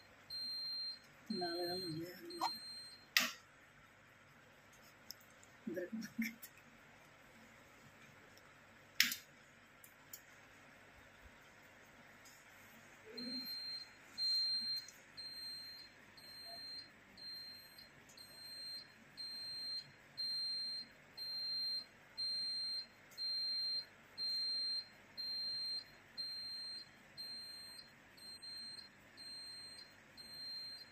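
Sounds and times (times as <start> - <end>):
electronic alarm beeping: 0.0 - 3.4, 13.1 - 30.9.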